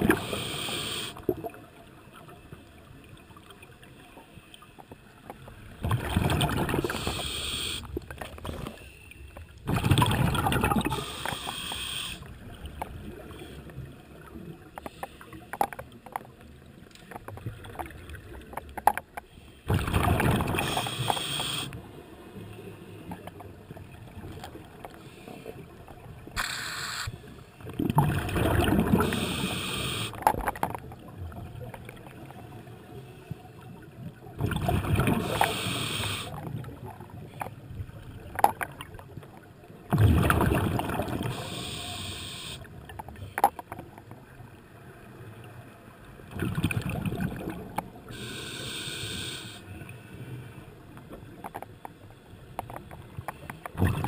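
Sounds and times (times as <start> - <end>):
air hissing through regulator: 0.1 - 1.2, 6.9 - 7.9, 10.9 - 12.2, 20.6 - 21.7, 26.4 - 27.2, 29.0 - 30.2, 35.2 - 36.3, 41.3 - 42.6, 48.1 - 49.6
exhaled bubbles underwater: 5.7 - 7.4, 9.6 - 11.4, 19.7 - 21.1, 27.6 - 29.6, 33.8 - 41.8, 46.3 - 48.2, 53.8 - 54.0
faint clicks: 50.9 - 53.8.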